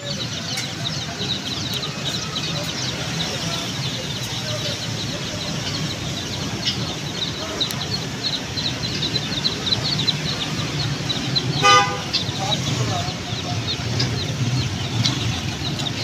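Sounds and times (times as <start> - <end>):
caged birds chirping: 0.0 - 16.0
vehicle horn honk: 11.6 - 12.2.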